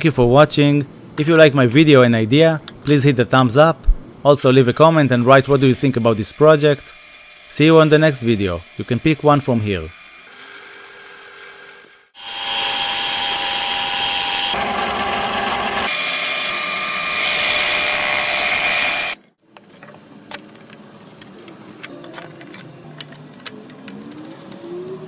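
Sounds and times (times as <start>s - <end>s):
drill press sanding whir: 5.1s - 19.2s.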